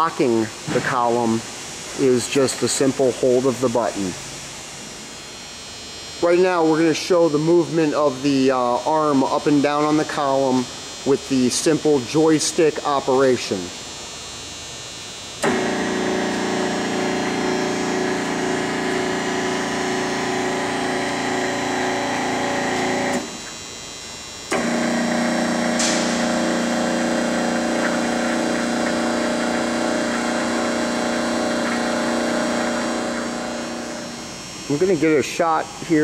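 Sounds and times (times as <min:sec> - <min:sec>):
drill press motor and gearing: 0:15.4 - 0:23.6, 0:24.5 - 0:34.3.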